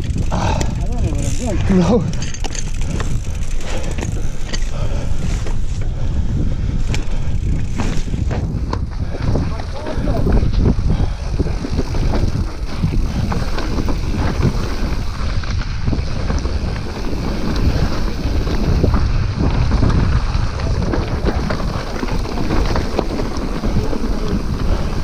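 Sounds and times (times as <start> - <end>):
mountain bike rattling: 0.0 - 25.0
wind buffeting the microphone: 0.0 - 25.0
tyres crunching on gravel: 11.6 - 25.0.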